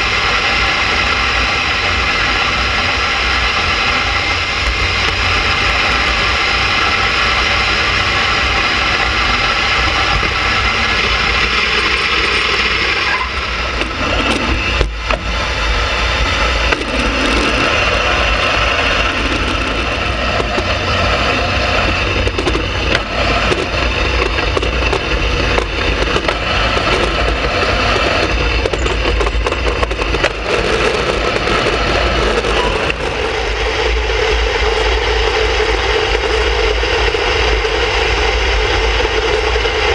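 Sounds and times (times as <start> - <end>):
wind buffeting microphone: 2.4 - 39.9
ice boat runners scraping ice: 16.6 - 33.5.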